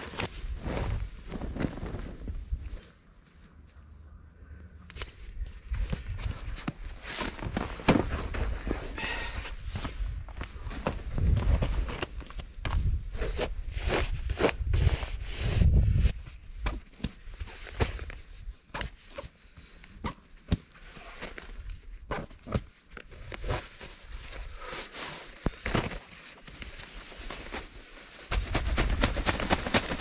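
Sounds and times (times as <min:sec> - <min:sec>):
fabric rustling and scraping: 0:00.0 - 0:03.7, 0:05.0 - 0:09.0.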